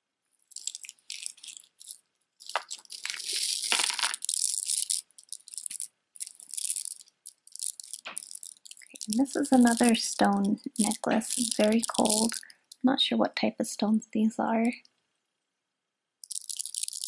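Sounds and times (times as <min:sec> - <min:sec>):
beads clicking and clattering: 0:00.4 - 0:12.8, 0:16.2 - 0:17.0.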